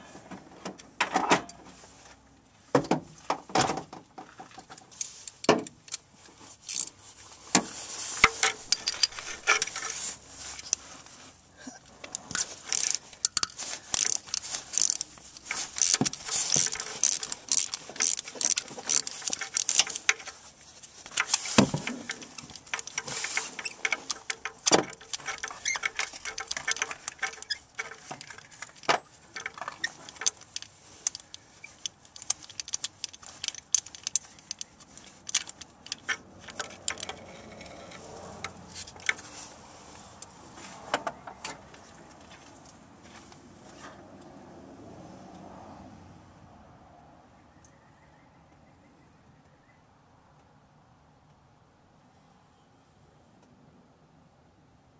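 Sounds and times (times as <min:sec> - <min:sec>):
ratchet wrench clicking: 0:06.7 - 0:06.9, 0:12.2 - 0:20.4, 0:21.1 - 0:39.2.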